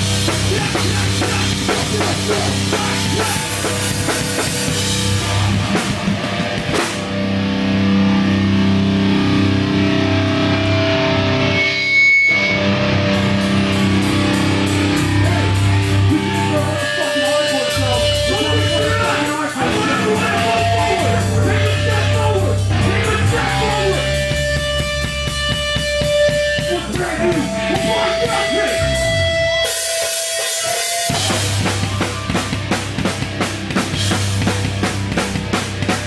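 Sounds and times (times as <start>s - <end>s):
fast even drum beat: 0.0s - 7.1s, 16.6s - 28.6s, 29.8s - 36.0s
drum kit: 0.0s - 10.8s, 11.4s - 36.0s
bass guitar: 0.0s - 36.0s
distorted electric guitars: 0.0s - 36.0s.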